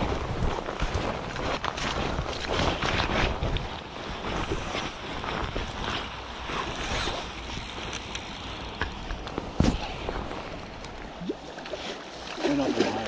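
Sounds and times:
wind buffeting microphone: 0:00.0 - 0:07.8
clothing rubbing on microphone: 0:00.0 - 0:08.0
rustling through dry grass: 0:00.0 - 0:12.6.

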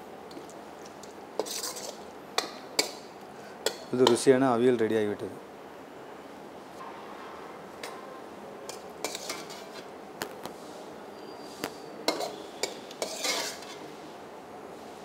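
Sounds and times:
spoon scraping wok: 0:00.3 - 0:04.2, 0:08.7 - 0:09.9, 0:11.3 - 0:14.0.

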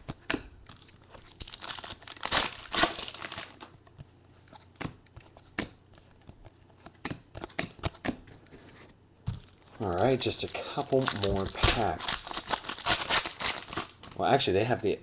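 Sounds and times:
foil wrapper crinkling and tearing: 0:00.7 - 0:03.7, 0:09.4 - 0:14.2.

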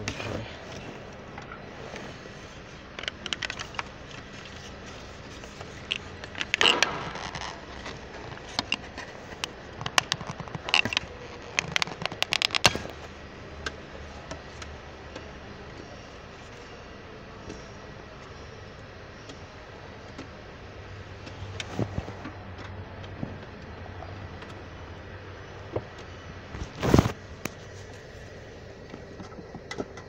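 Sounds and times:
plastic trim scrape: 0:03.0 - 0:13.0
plastic trim clicks and knocks: 0:05.9 - 0:13.0.

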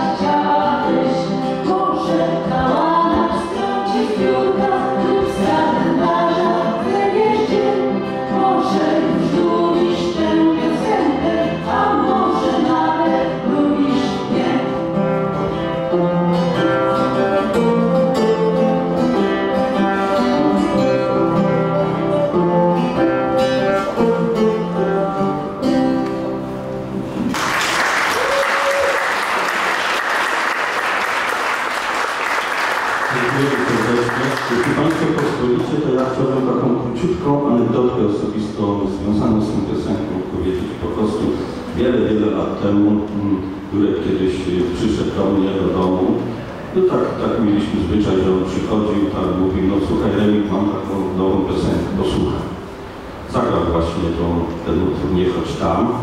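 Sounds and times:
woman singing: 0:00.0 - 0:14.9
acoustic guitars: 0:00.0 - 0:56.0
audience applauding: 0:27.2 - 0:36.0.

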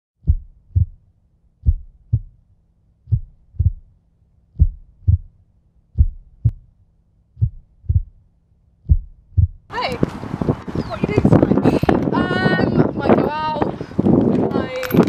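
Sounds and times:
slow heartbeat thumps: 0:00.2 - 0:10.2.

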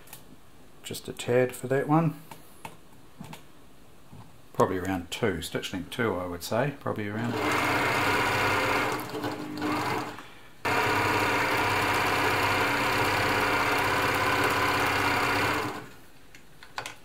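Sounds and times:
sewing machine stitching: 0:07.2 - 0:16.0.

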